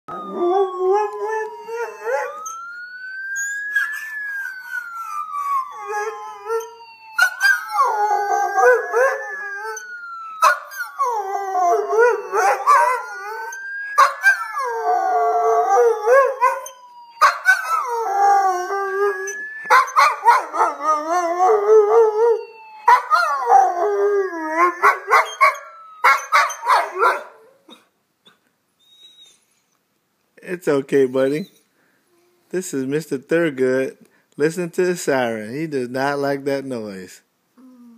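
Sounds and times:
wailing siren: 0:00.0 - 0:27.7
dog howling: 0:00.1 - 0:02.6, 0:03.4 - 0:27.4.

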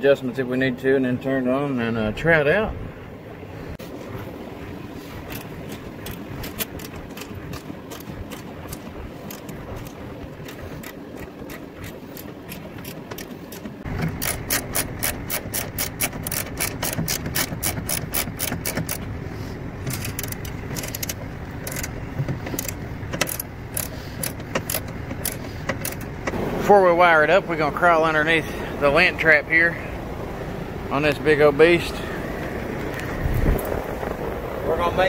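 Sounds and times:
socket ratchet clicking: 0:05.3 - 0:19.1, 0:19.9 - 0:26.2.

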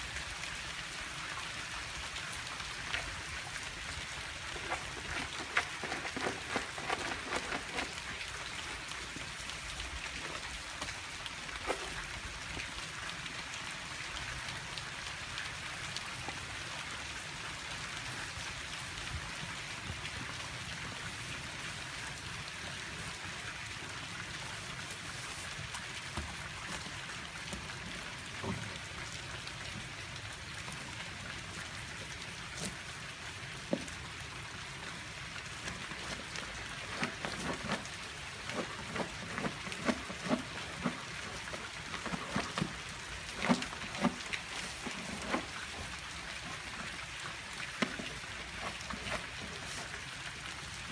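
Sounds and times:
steady rain falling: 0:00.0 - 0:50.9.

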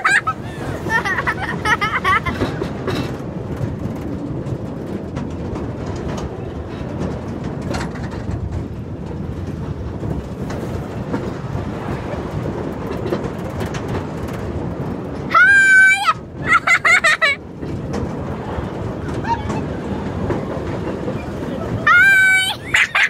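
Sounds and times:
ride rumbling and rattling: 0:00.0 - 0:23.0
small clicks and clatters: 0:02.1 - 0:15.3.

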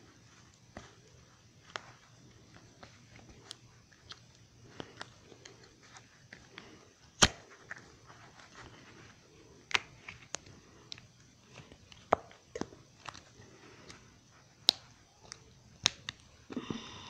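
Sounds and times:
plastic brick snap: 0:07.2 - 0:07.8.

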